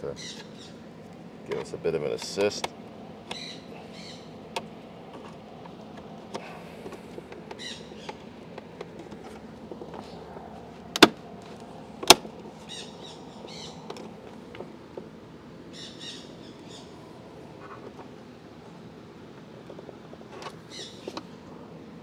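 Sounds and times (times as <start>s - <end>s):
birds chirping: 0.0s - 14.7s, 15.5s - 17.3s, 20.6s - 21.4s.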